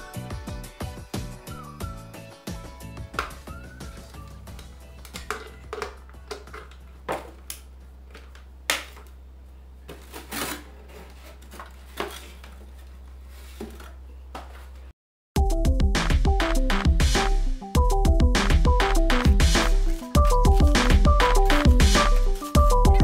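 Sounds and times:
background music with a beat: 0.0s - 6.2s, 15.4s - 23.0s.

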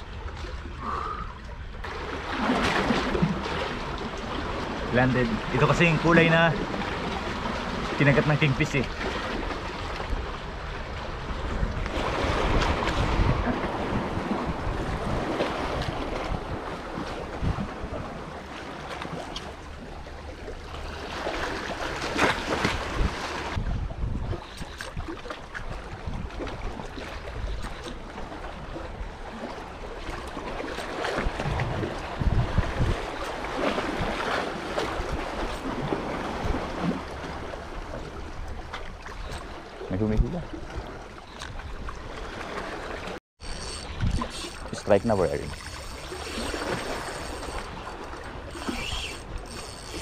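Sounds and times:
sea waves washing on rocks: 1.8s - 19.3s, 42.1s - 50.0s
wind buffeting microphone: 9.2s - 18.3s, 22.1s - 29.1s, 31.0s - 42.4s, 43.4s - 50.0s.

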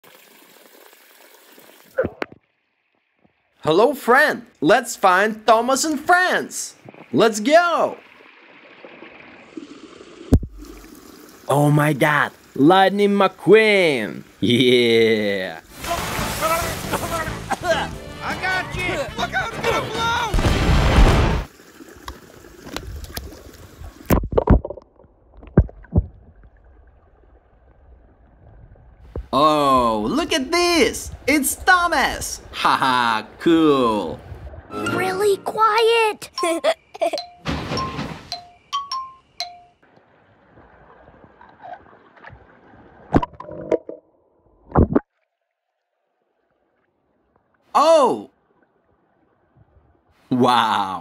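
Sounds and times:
pool water splashing: 0.0s - 3.2s, 4.7s - 24.1s, 29.3s - 43.9s
sharp water splashes: 6.8s - 11.5s, 15.6s - 18.0s, 20.3s - 24.5s
water gurgling and bubbling: 8.0s - 11.5s.

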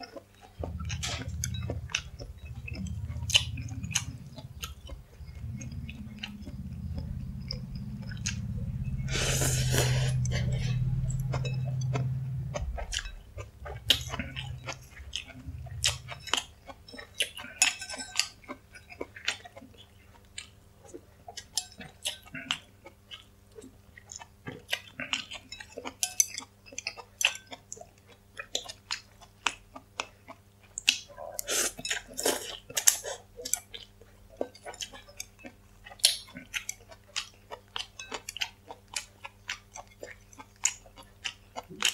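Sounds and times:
wet chewing and mouth clicks: 0.0s - 41.9s
low hum: 0.5s - 18.4s.

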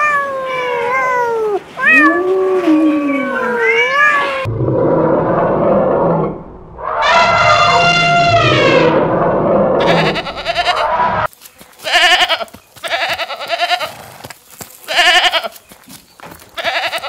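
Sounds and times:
rough noisy animal sound: 4.4s - 17.0s
long loud animal call: 6.8s - 9.1s.

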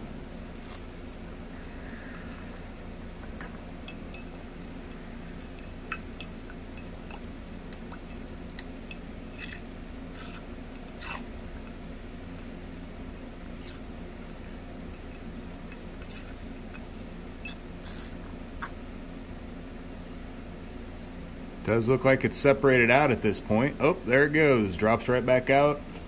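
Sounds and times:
steady low hum: 0.0s - 26.0s.

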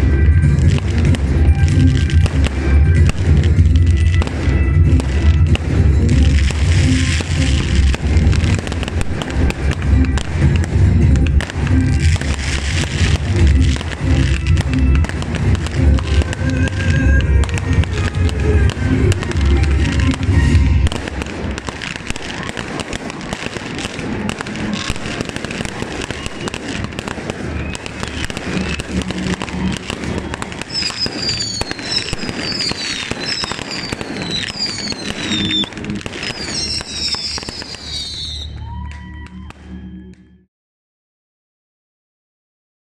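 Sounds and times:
crowd whistling: 0.0s - 40.5s
audience clapping: 38.5s - 39.7s.

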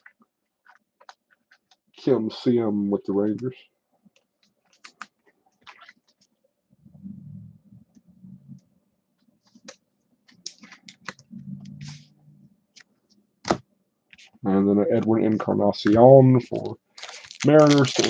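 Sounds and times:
cards and plastic holder handled: 9.5s - 11.2s, 15.8s - 18.0s.

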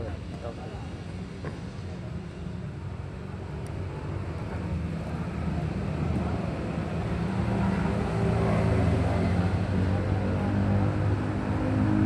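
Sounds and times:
street traffic: 0.0s - 12.0s
vehicle engine approaching: 3.8s - 12.0s.

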